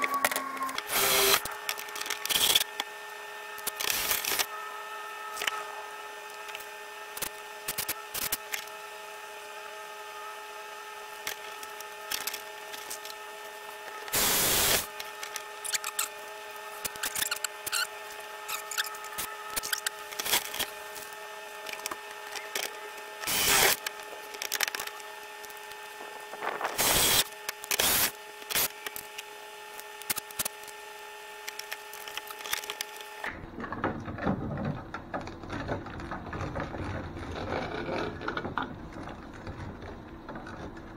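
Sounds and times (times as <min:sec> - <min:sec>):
steady multi-tone hum: 0:00.0 - 0:40.9
cordless drill driving screws: 0:00.8 - 0:01.5.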